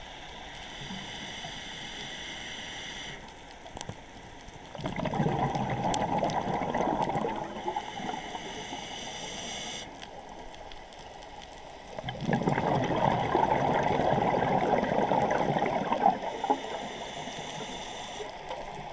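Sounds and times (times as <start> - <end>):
high hiss: 0.0 - 3.3, 7.6 - 10.0, 16.2 - 18.6
underwater bubbles gurgling: 3.5 - 18.9.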